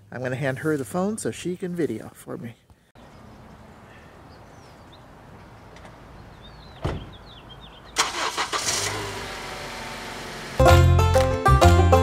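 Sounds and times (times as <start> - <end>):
small birds chirping: 2.4 - 8.1
car door slamming: 6.8 - 7.2.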